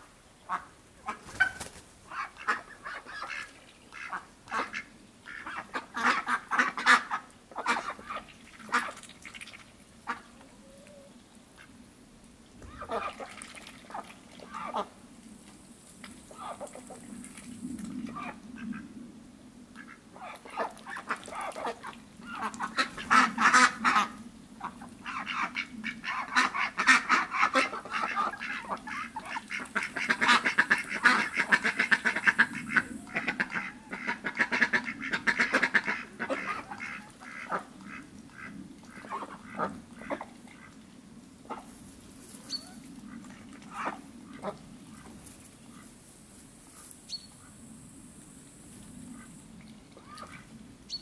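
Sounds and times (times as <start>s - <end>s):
ducks quacking: 0.4s - 9.0s, 10.0s - 10.5s, 12.6s - 15.0s, 16.3s - 17.1s, 18.0s - 18.8s, 19.8s - 40.8s, 42.4s - 46.0s.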